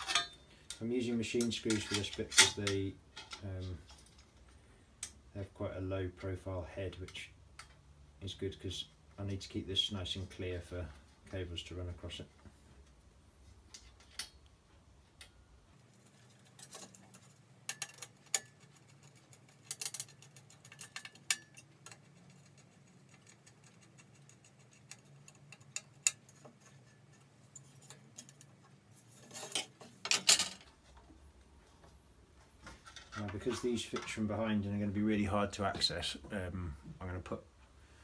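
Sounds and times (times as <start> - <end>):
metal clatter of knocks: 0.0 - 0.4
small metallic clicks and clinks: 16.2 - 28.6.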